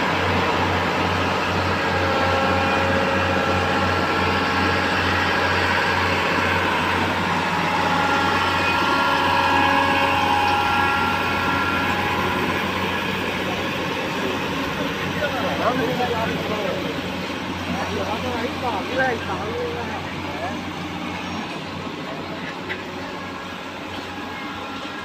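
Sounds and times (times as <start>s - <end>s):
high whining tones: 2.4s - 16.6s.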